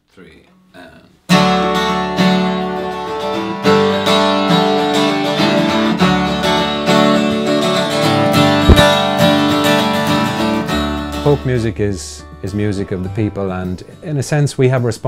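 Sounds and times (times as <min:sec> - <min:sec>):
acoustic guitar strumming: 0:01.3 - 0:14.0
low thump: 0:08.6 - 0:09.0.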